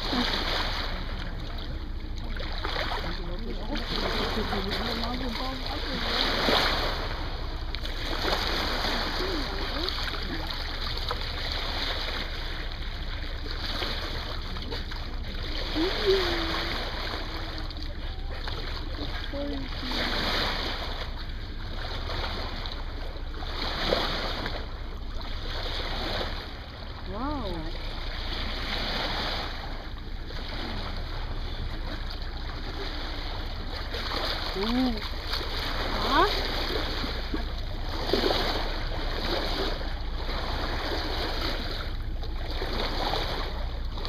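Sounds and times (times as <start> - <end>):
constant low hum: 0.0 - 44.0
low rumble: 0.0 - 44.0
water rushing along boat hull: 0.0 - 44.0
wind: 0.0 - 44.0.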